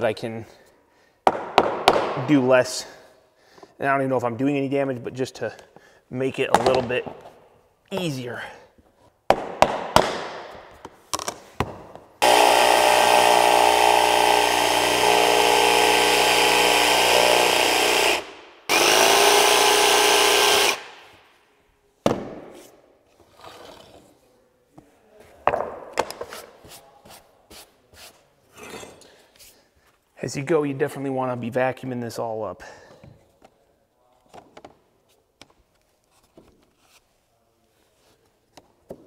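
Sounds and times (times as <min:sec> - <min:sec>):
jigsaw cutting vinyl: 0:12.2 - 0:20.9.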